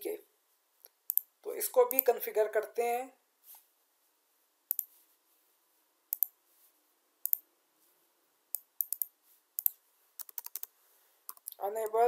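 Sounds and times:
computer mouse clicks: 1.1s - 1.3s, 1.9s - 2.1s, 4.7s - 4.9s, 6.1s - 6.4s, 7.2s - 7.4s, 8.5s - 10.7s, 11.3s - 12.0s
keyboard keystrokes: 8.8s - 10.7s.

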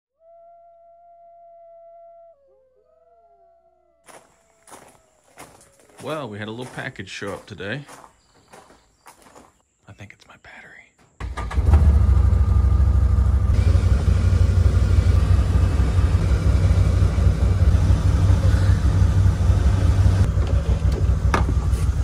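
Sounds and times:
engine idling low rumble: 11.2s - 22.0s.

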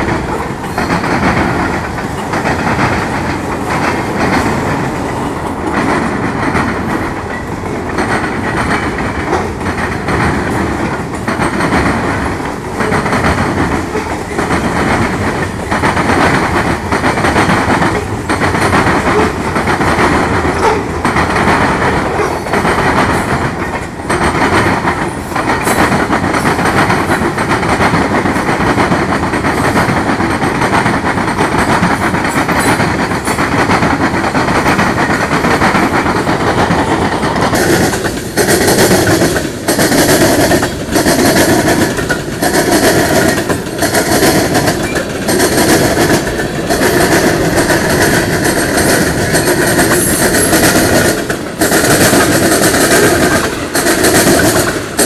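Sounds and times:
train wheels rumbling on rail: 0.0s - 55.0s
wheels clacking on rail joints: 0.0s - 55.0s.

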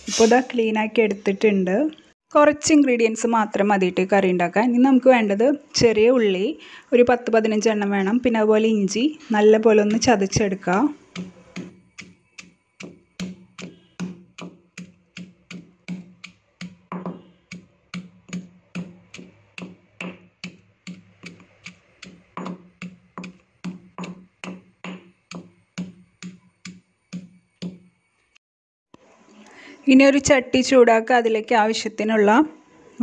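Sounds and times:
pestle pounding in stone mortar: 9.8s - 27.9s.

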